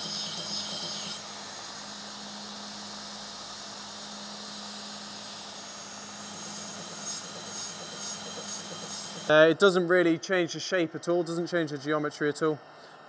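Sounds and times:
belt grinder motor hum: 0.0s - 9.4s.

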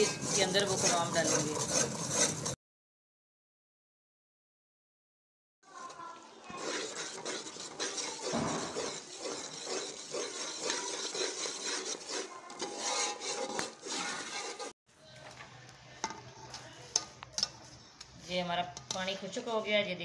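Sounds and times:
metal spoon scraping pan: 0.0s - 2.6s, 5.7s - 14.8s.

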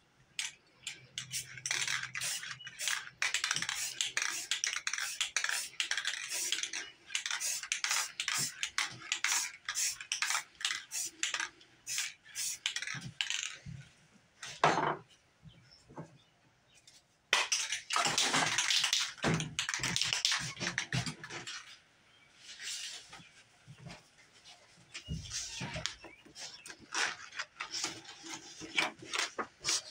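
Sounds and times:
spray can rattling: 0.4s - 13.6s, 17.4s - 21.0s
spray paint hissing: 1.2s - 12.9s.

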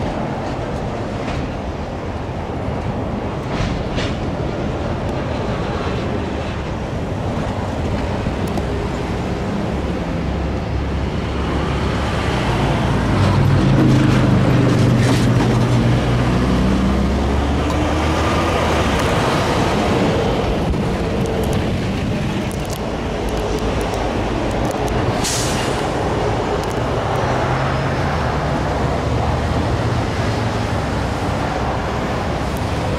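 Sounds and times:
traffic over railroad crossing: 0.0s - 32.9s
truck engine pulling away: 11.2s - 22.4s
short sharp hiss: 25.2s - 25.9s.

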